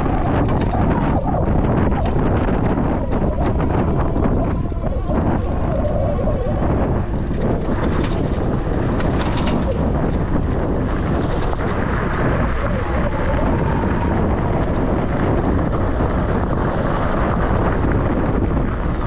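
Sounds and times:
wind buffeting microphone: 0.0s - 19.0s
small clicks and rattles: 7.2s - 17.4s.

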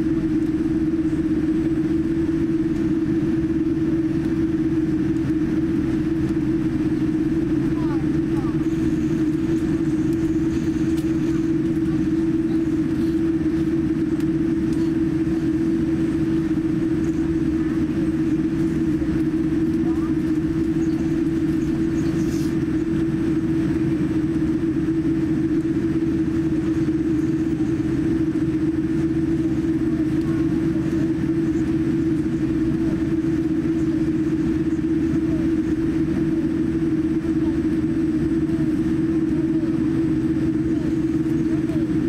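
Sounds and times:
airliner cabin drone: 0.0s - 42.0s.

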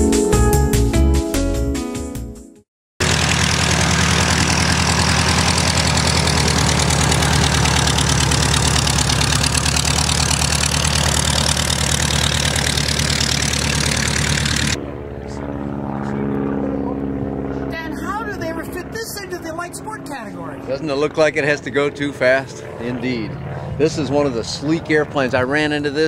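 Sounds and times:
propeller aircraft engine taxiing: 3.0s - 26.0s.

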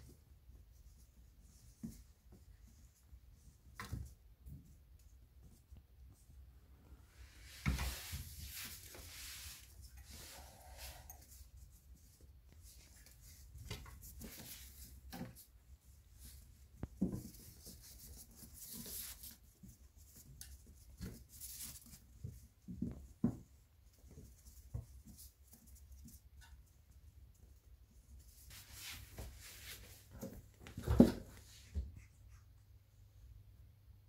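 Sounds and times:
kittens scampering on tiles: 0.0s - 33.4s.

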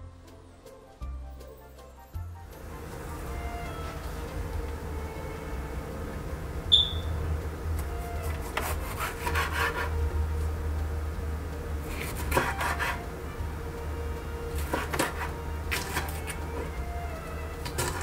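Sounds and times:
low steady hum: 2.4s - 18.0s
knife cutting on wooden board: 8.2s - 10.0s, 11.9s - 13.0s, 14.6s - 16.4s.

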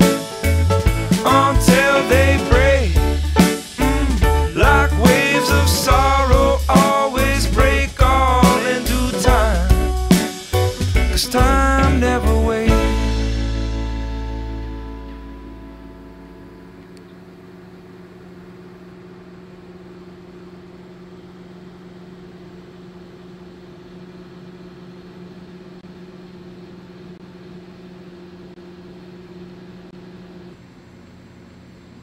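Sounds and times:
rock song: 0.0s - 16.6s
steady mechanical hum: 12.5s - 32.0s.

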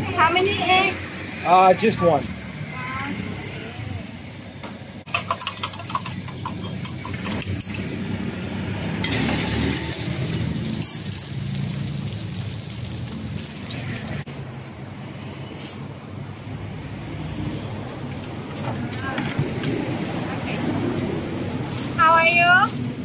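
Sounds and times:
egg sizzling in hot oil: 9.1s - 14.2s.

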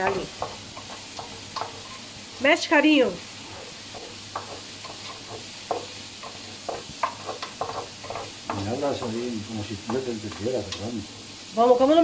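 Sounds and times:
steady sizzle: 0.0s - 12.0s
wooden spoon stirring rice: 0.0s - 12.0s
person speaking: 8.5s - 12.0s.

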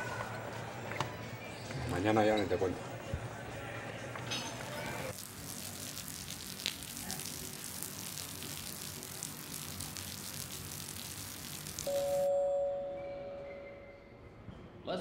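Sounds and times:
rain on wet pavement: 5.1s - 12.3s.

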